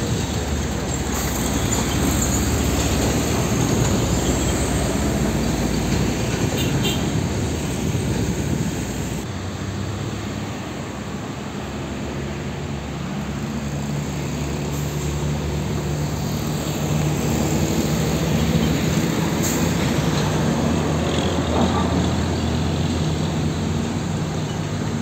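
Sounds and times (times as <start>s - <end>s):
truck diesel engine passing: 0.0s - 25.0s.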